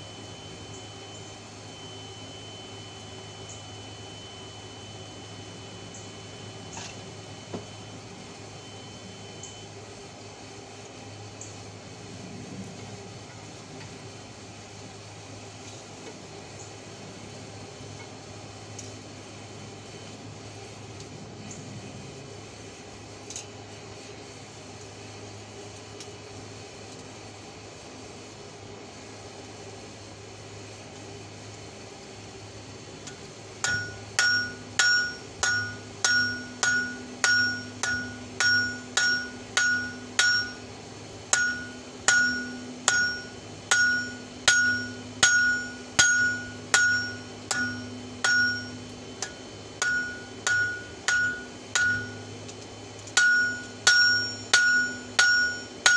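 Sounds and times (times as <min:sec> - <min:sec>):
steady low hum: 0:00.0 - 0:55.9
hammer striking hot metal on anvil: 0:33.1 - 0:40.7, 0:41.3 - 0:52.3, 0:53.0 - 0:55.9
anvil ringing ping: 0:33.6 - 0:40.7, 0:41.3 - 0:52.3, 0:53.2 - 0:55.9.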